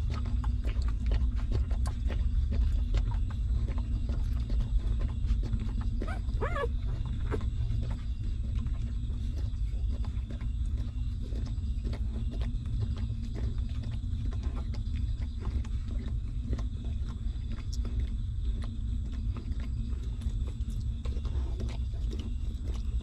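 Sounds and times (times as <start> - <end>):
puppies suckling wet smacking: 0.0 - 23.0
steady low rumble: 0.0 - 23.0
puppy whimper: 6.0 - 7.5.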